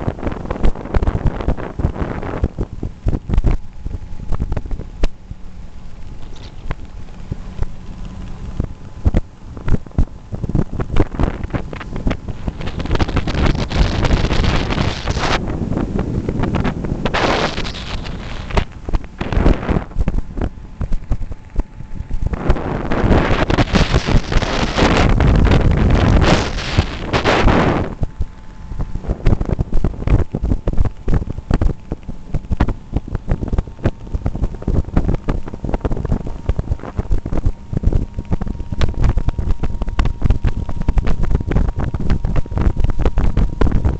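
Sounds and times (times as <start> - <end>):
boat motor humming: 0.0 - 43.9
wind buffeting microphone: 0.0 - 43.9.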